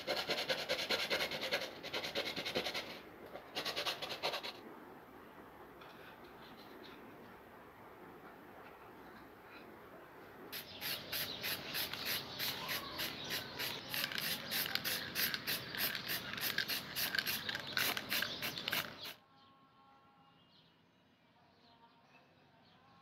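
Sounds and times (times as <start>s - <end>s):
spray paint can hissing bursts: 10.6s - 19.2s.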